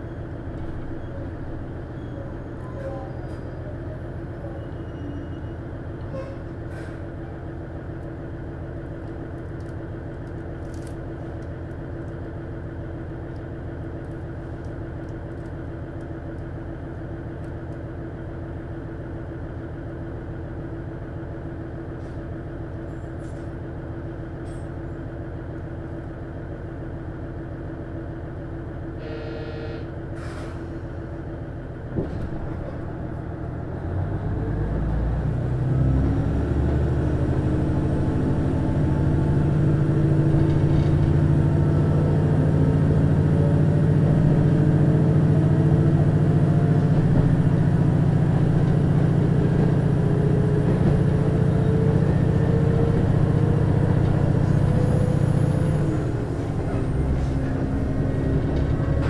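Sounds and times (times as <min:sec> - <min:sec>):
diesel engine idling: 0:25.1 - 0:59.0.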